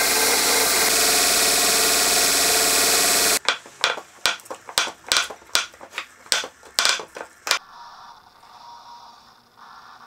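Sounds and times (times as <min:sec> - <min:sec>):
sharp metallic clicks and knocks: 0:03.4 - 0:07.6.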